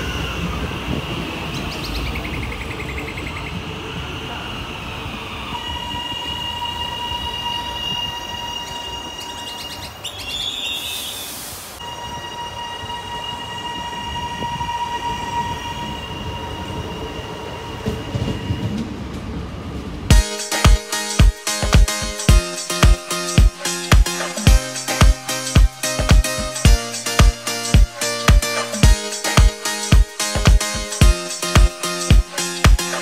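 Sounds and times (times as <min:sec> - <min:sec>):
wheel and track rumble: 0:00.0 - 0:09.5, 0:12.0 - 0:20.1
electric train whine: 0:00.0 - 0:33.0
music with a beat: 0:20.1 - 0:33.0.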